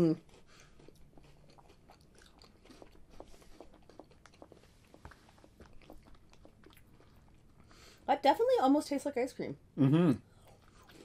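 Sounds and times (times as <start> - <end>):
people crunching cookies: 0.0 - 8.0, 10.3 - 11.0.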